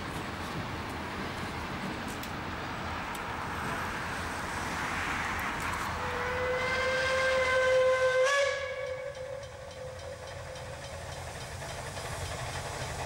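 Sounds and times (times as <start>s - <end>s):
steady steam hiss: 0.0s - 13.0s
steam whistle blast: 6.0s - 10.0s.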